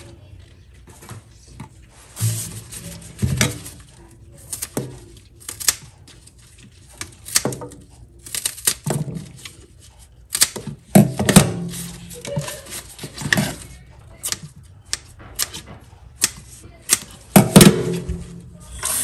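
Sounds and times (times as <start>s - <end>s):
scissors snipping green onions: 4.4s - 5.9s, 7.0s - 9.6s, 10.2s - 10.7s.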